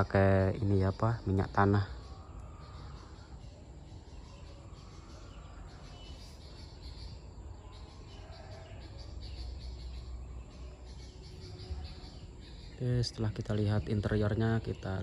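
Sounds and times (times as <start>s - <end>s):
faint high chirps: 0.0s - 15.0s.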